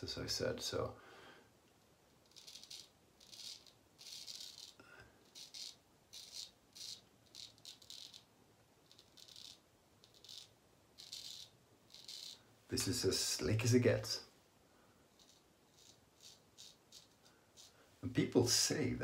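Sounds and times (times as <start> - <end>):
razor scraping stubble: 2.2 - 8.3, 8.9 - 12.5, 15.2 - 17.8.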